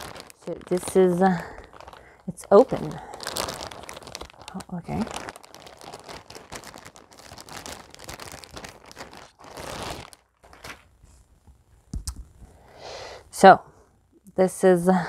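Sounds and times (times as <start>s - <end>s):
plastic packaging crinkling: 0.0s - 11.1s.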